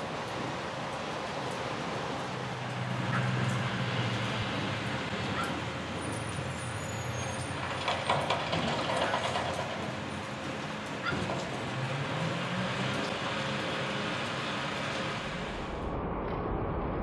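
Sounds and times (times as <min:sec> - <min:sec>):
garbage truck diesel engine: 0:02.8 - 0:15.8.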